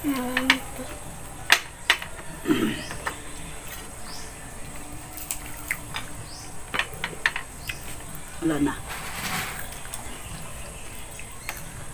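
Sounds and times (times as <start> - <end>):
person humming: 0.0 - 1.0, 2.3 - 3.6.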